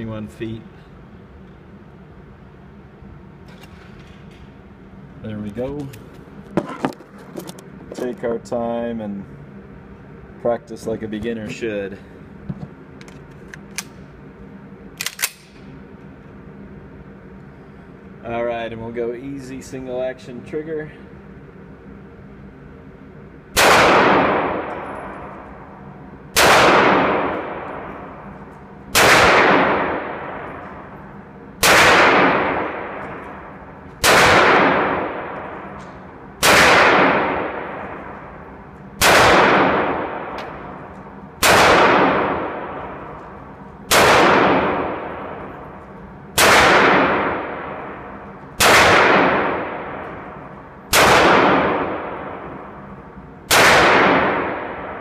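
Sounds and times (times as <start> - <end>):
pistol shots with echo: 23.6 - 25.3, 26.4 - 28.0, 28.9 - 30.8, 31.6 - 35.8, 36.4 - 38.2, 39.0 - 40.7, 41.4 - 43.2, 43.9 - 45.5, 46.4 - 52.8, 53.5 - 55.0.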